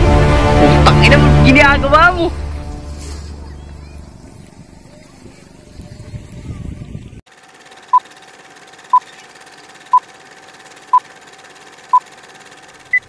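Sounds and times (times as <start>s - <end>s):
fast ticking: 7.3s - 13.0s.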